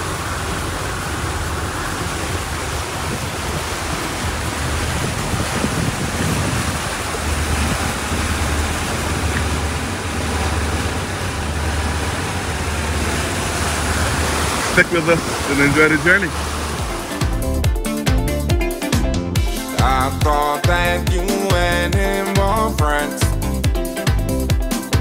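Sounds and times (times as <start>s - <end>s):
wind buffeting microphone: 0.0s - 17.7s
low rumble: 0.0s - 21.0s
rushing water from boat wake: 0.0s - 25.0s.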